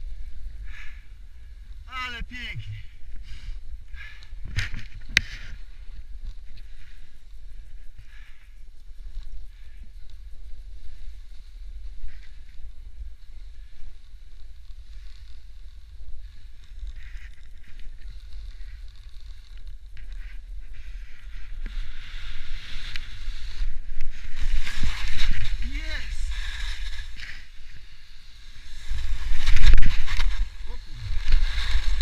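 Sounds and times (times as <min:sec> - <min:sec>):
snowboard scraping across snow: 0:10.2 - 0:32.0.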